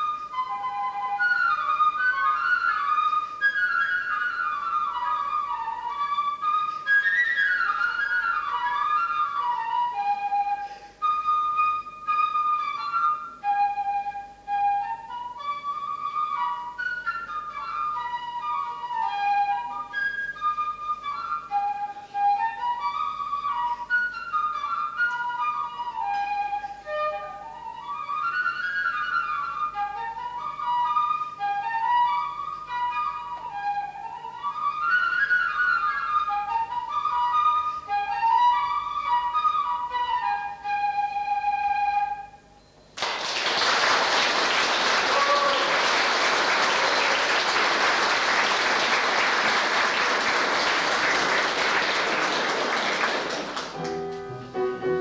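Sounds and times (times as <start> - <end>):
flute playing klezmer melody: 0.0 - 42.8, 43.5 - 55.0
audience applauding: 43.0 - 54.2.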